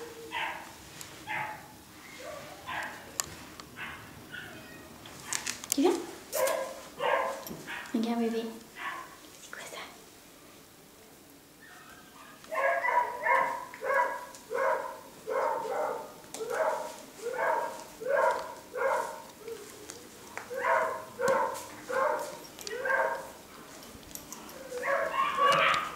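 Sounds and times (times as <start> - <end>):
puppy barking in high yaps: 0.2 - 0.7, 1.3 - 3.1, 3.8 - 5.5, 6.3 - 8.0, 8.8 - 9.2, 11.6 - 19.3, 20.5 - 23.4, 24.5 - 25.9.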